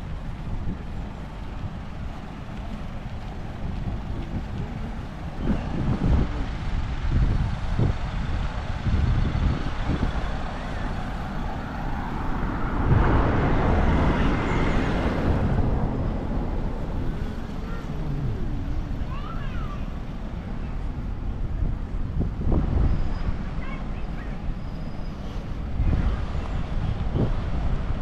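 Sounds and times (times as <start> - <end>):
traffic rumble: 0.0 - 28.0
vehicle passing close: 8.7 - 19.5.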